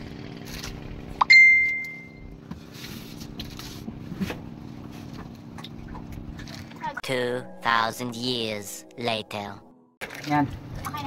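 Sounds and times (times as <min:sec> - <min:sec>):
boat engine hum: 0:00.0 - 0:11.0
metallic ding: 0:01.2 - 0:02.2.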